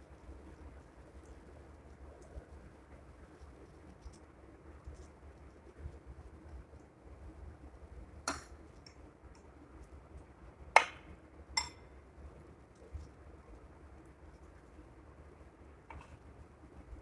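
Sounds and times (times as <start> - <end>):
spoon clinking on plate: 11.6 - 11.8.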